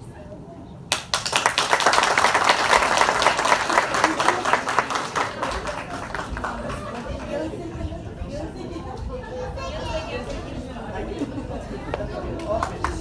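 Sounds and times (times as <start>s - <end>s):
audience applauding: 0.9s - 7.7s.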